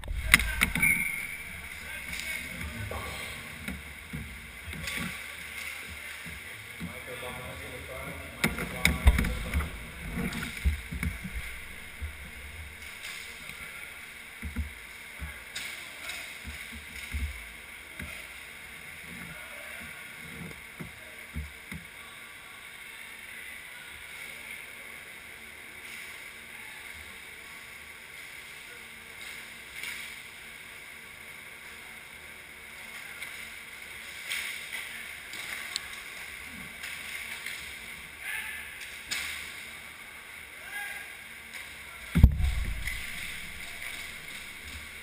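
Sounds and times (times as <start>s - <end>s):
rink background hiss: 0.0s - 45.0s
thumps against goal net: 42.2s - 44.7s.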